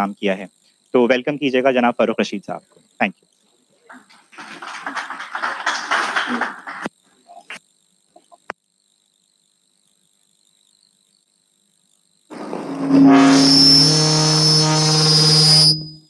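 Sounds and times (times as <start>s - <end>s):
audience applauding: 3.9s - 6.9s.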